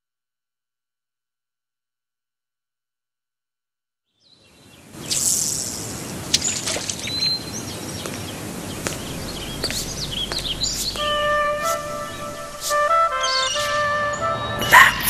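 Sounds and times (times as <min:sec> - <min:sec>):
birds chirping: 0:04.2 - 0:15.0
steady rushing noise: 0:07.2 - 0:13.8.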